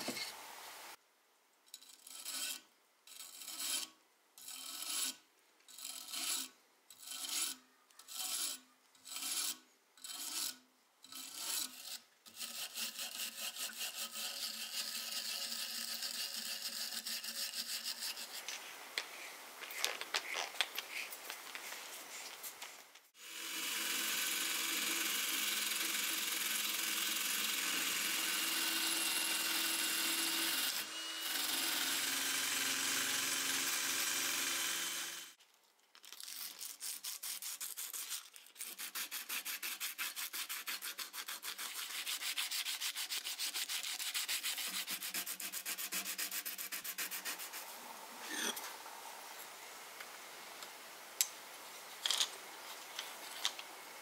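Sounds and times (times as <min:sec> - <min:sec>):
drill wire brush on steel: 0:01.7 - 0:19.1, 0:23.2 - 0:35.4, 0:36.8 - 0:48.7
sandpaper rubbing on metal: 0:06.0 - 0:18.6, 0:36.4 - 0:48.5.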